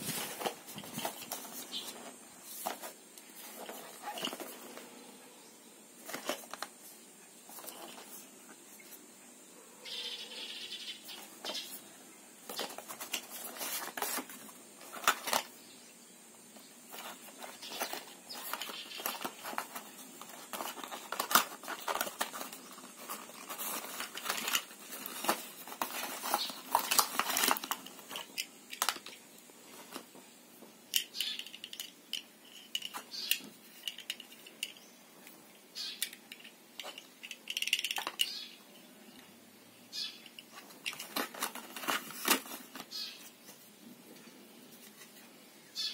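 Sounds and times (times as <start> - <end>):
cardboard rustling and crinkling: 0.0 - 5.0, 6.0 - 9.0, 12.4 - 15.5, 16.9 - 30.2, 40.5 - 44.2.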